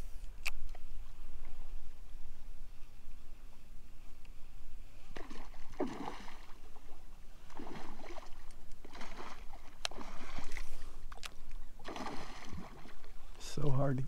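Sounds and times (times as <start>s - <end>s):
paddle strokes in water: 5.1s - 11.2s.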